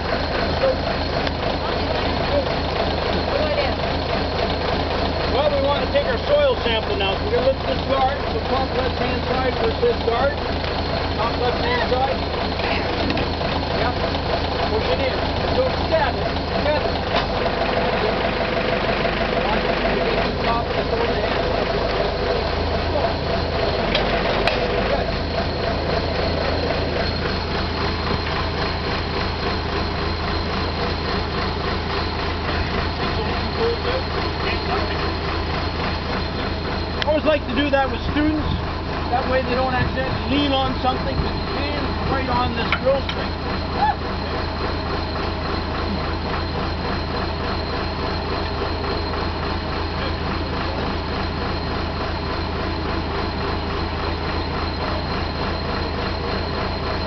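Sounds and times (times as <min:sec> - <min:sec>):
drill rig engine humming: 0:00.0 - 0:57.0.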